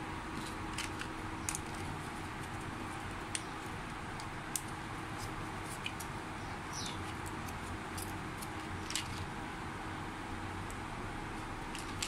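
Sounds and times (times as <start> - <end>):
steady background hiss: 0.0 - 12.0
blister pack clicks and crinkles: 0.4 - 6.1, 6.8 - 9.3, 11.7 - 12.0.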